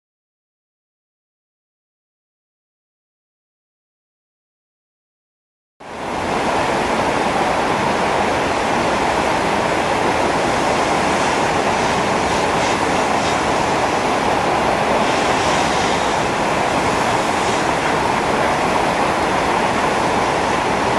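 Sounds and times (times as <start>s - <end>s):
floodwater rushing: 5.9s - 20.9s.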